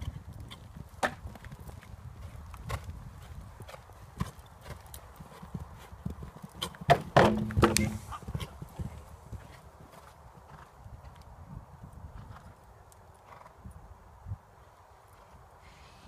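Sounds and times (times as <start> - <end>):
horse hoofbeats on sand: 0.0 - 11.2.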